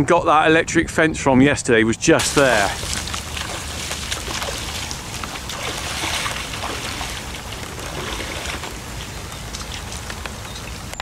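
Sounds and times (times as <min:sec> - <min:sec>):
boots sloshing through water: 0:02.2 - 0:10.9
rain pattering: 0:02.2 - 0:11.0.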